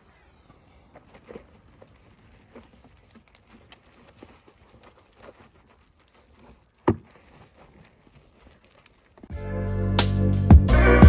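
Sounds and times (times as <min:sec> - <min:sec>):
wash mitt squelching on car: 0:00.5 - 0:09.3.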